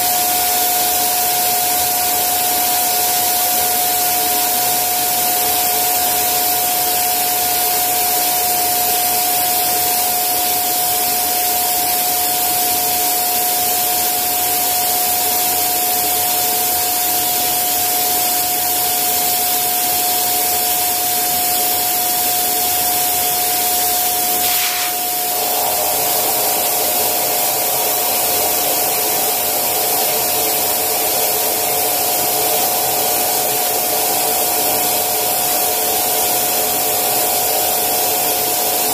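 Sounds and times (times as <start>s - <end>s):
electric air pump whining: 21.2s - 34.2s.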